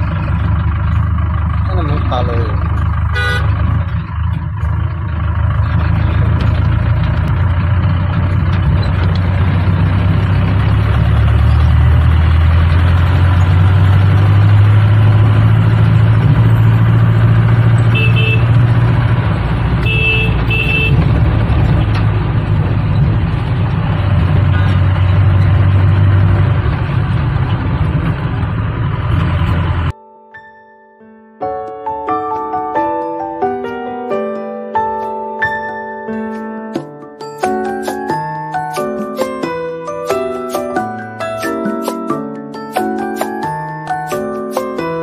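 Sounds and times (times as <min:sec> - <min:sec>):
car engine and road noise: 0:00.0 - 0:30.0, 0:31.4 - 0:45.0
short horn beeps: 0:03.1 - 0:03.5, 0:17.9 - 0:18.6, 0:19.8 - 0:21.0.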